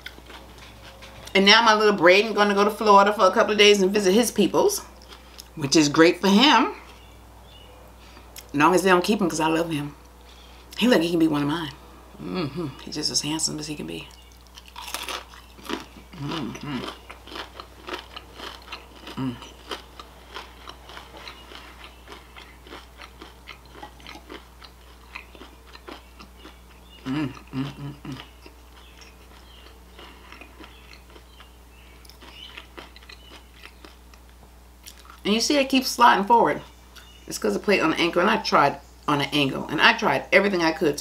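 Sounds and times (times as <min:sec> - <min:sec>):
crisp crunchy chewing: 0:00.0 - 0:01.4, 0:14.1 - 0:35.2.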